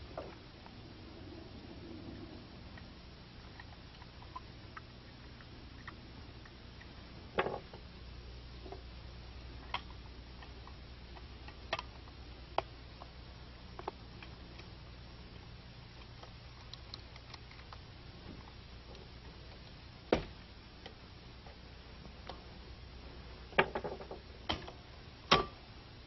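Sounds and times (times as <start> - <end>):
faint low hum: 0.0 - 26.0.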